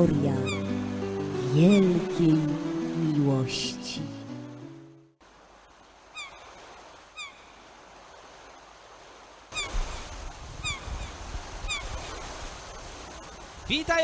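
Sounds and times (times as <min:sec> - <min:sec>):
sea surf washing: 0:00.0 - 0:14.0
seagulls calling: 0:00.1 - 0:02.2, 0:06.1 - 0:06.6, 0:07.2 - 0:07.5, 0:09.5 - 0:12.0.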